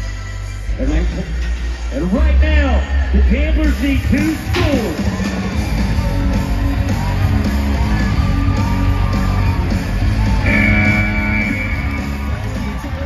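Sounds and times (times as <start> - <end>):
loud rock music with singing: 0.0 - 13.0
high held note: 10.4 - 12.3.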